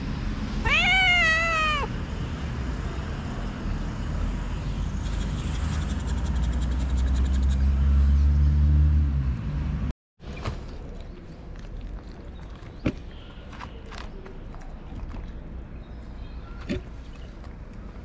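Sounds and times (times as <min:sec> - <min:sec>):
cat meowing: 0:00.6 - 0:02.0.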